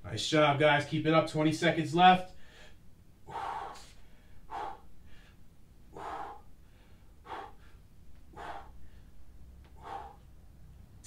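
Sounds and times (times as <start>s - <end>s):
man breathing out forcefully: 2.4s - 10.4s.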